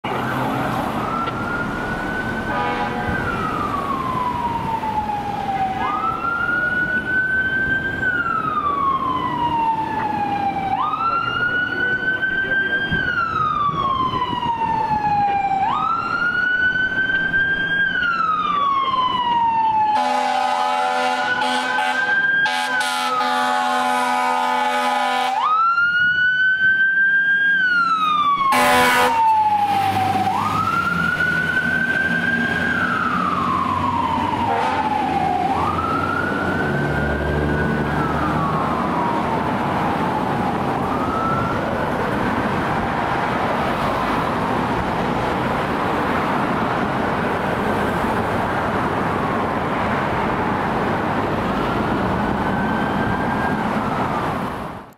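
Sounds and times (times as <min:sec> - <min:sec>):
fire engine siren wailing: 0:00.0 - 0:54.9
air horn blasts: 0:02.5 - 0:03.3, 0:20.0 - 0:25.4, 0:28.5 - 0:29.2, 0:34.5 - 0:35.0.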